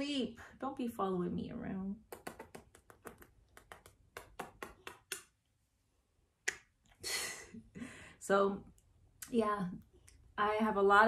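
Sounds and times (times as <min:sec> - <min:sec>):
person making kissing noises: 0:02.1 - 0:05.4.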